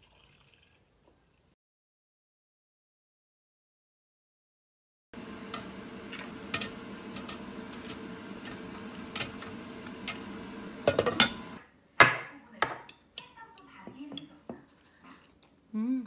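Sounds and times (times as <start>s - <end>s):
steady background hum: 5.2s - 11.6s.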